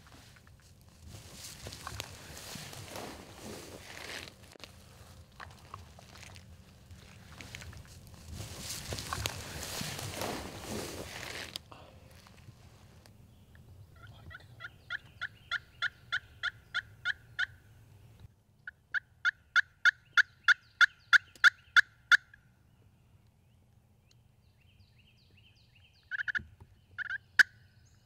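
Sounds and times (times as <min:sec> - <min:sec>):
turkey call hen yelps: 0:14.0 - 0:17.6, 0:18.7 - 0:22.4, 0:26.1 - 0:26.4, 0:27.0 - 0:27.6.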